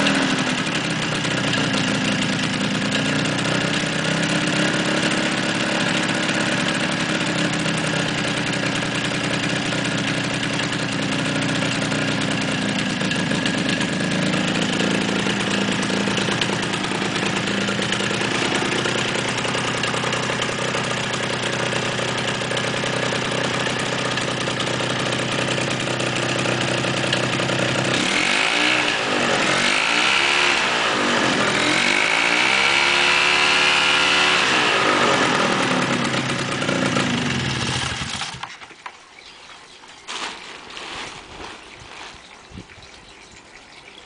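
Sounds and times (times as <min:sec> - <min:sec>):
two-stroke engine running: 0:00.0 - 0:38.6.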